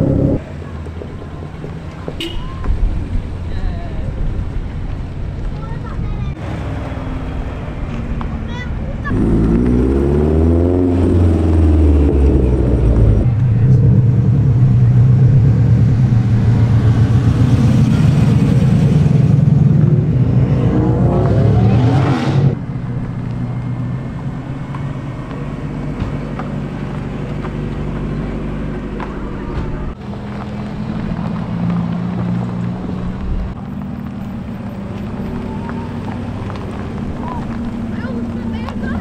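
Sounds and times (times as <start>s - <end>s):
deep exhaust note: 0.0s - 0.4s, 9.0s - 26.1s
car engines revving: 0.0s - 39.0s.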